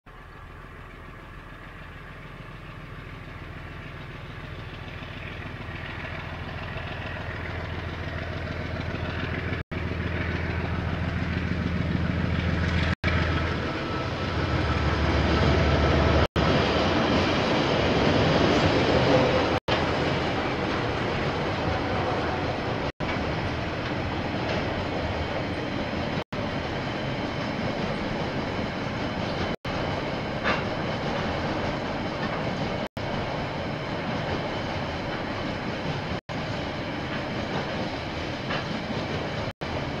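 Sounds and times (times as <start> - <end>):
diesel train engine hum: 0.0 - 40.0
rail noise: 0.1 - 40.0.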